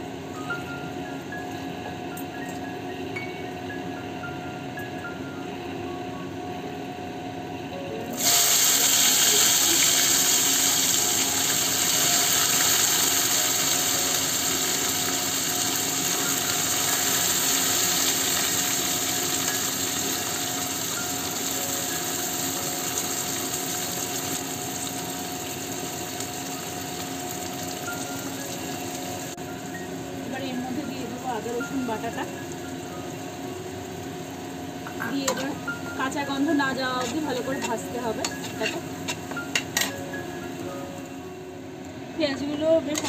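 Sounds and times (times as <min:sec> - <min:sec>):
onions sizzling in hot oil: 0:08.1 - 0:40.6.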